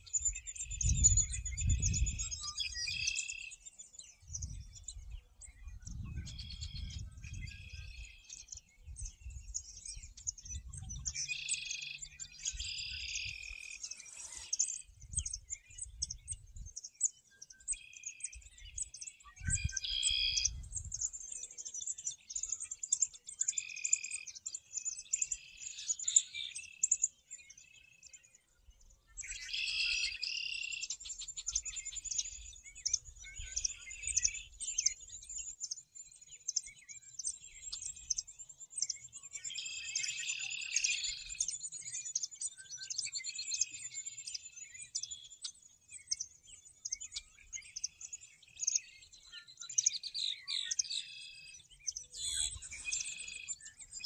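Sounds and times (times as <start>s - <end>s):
songbirds singing and chirping: 0.0s - 54.0s.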